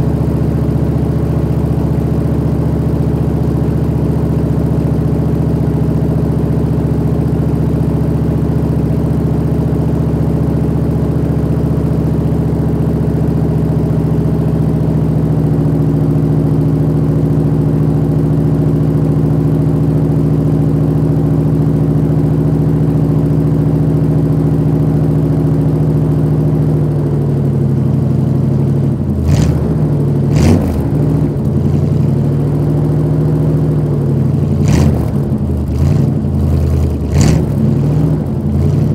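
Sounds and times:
pickup truck engine idling: 0.0 - 38.9
engine throttle blips: 9.4 - 38.9.

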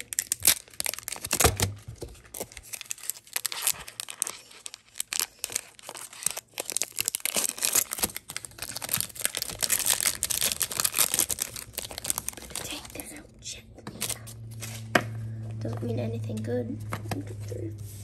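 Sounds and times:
foil wrapper tearing and crinkling: 0.0 - 13.2, 13.9 - 14.8.

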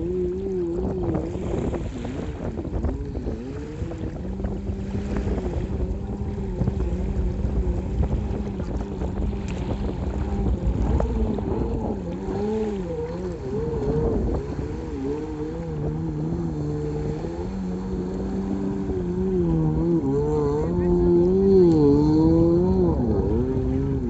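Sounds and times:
jet ski engine at speed: 0.0 - 24.0
wind buffeting microphone: 0.0 - 24.0.

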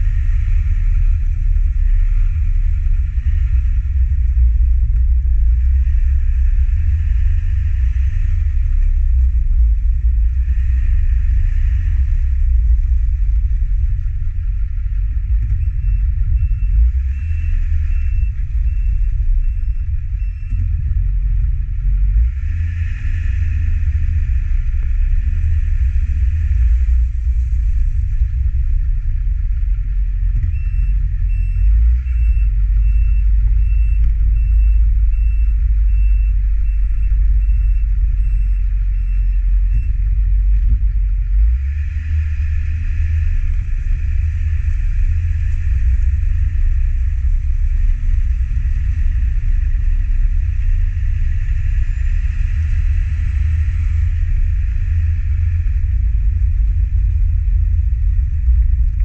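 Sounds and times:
truck engine rumble: 0.0 - 59.0
short electronic beeps: 30.4 - 40.0.

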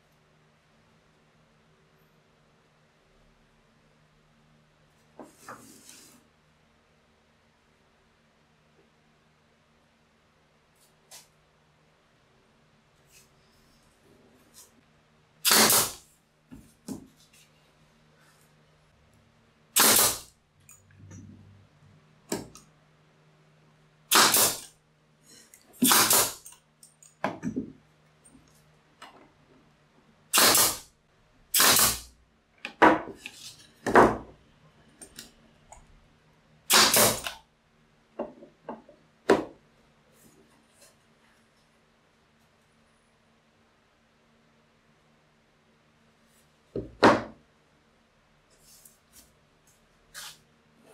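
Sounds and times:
nail gun shots: 15.4 - 16.0, 19.8 - 20.3, 24.1 - 24.7, 25.8 - 26.5, 30.3 - 30.9, 31.5 - 32.1, 36.7 - 37.4.

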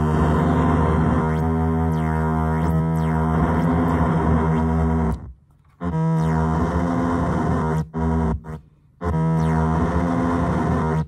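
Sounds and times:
buzzy electronic drone: 0.0 - 11.0.

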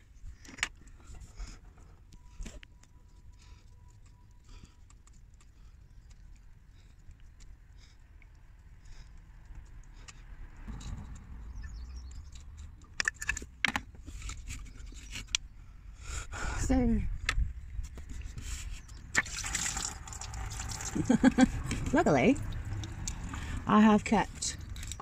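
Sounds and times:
small metal parts clicking: 24.5 - 25.0.

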